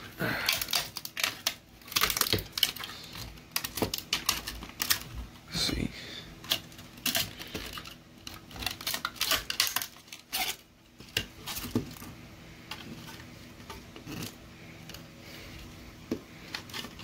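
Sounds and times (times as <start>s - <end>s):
metal blade scraping plastic: 6.4s - 11.9s.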